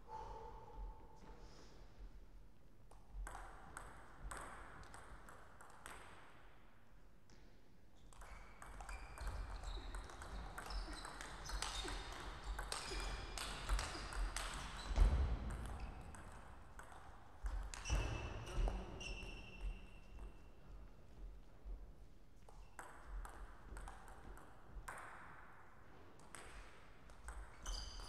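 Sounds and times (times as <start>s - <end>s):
ping pong ball clicking off bats: 2.9s - 6.4s, 8.1s - 18.0s, 22.4s - 25.6s, 26.2s - 28.0s
ball bouncing on table: 3.2s - 6.2s, 8.1s - 18.8s, 22.5s - 25.4s.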